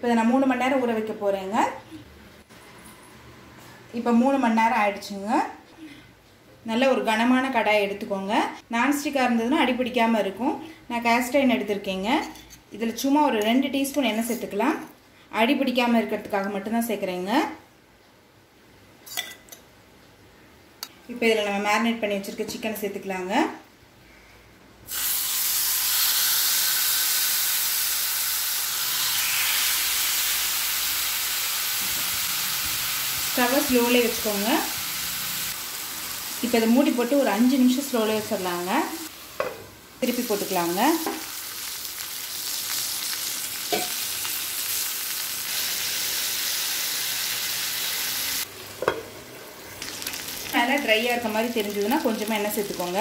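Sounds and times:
chicken sizzling in hot oil: 24.9s - 39.4s, 40.0s - 48.5s, 49.8s - 53.0s.

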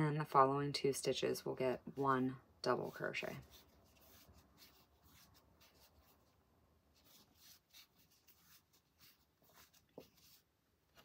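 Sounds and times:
yarn scratching on crochet hook: 2.7s - 6.3s, 7.0s - 10.5s.

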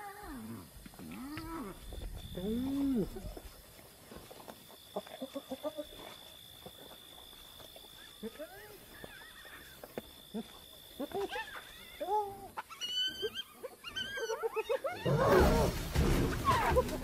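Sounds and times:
hyenas squealing: 8.0s - 9.8s, 11.0s - 17.0s
lion growling: 14.9s - 17.0s.

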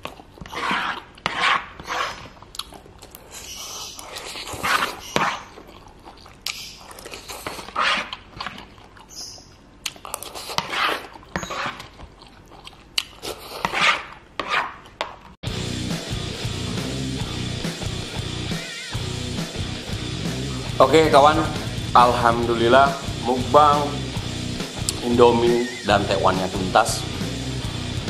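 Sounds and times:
chewing: 0.0s - 1.2s, 2.4s - 14.2s
music: 15.4s - 28.0s.

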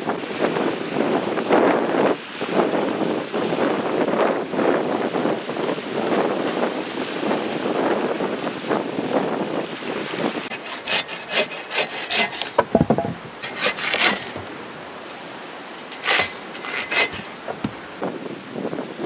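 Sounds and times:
bow saw cutting through log: 10.4s - 14.6s, 15.8s - 17.9s
knock: 12.6s - 13.2s.

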